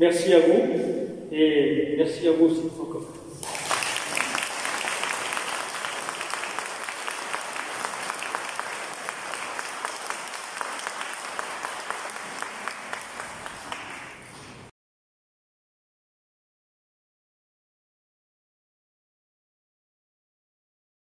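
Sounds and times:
audience applauding: 3.4s - 14.7s.

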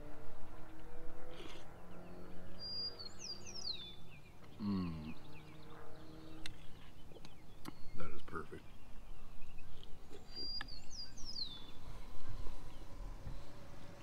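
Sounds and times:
man humming mm: 4.6s - 5.2s
songbird whistling: 9.2s - 11.8s.

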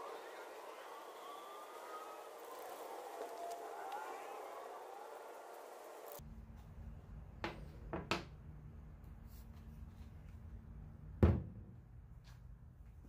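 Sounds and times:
loud thunk: 11.2s - 11.8s.

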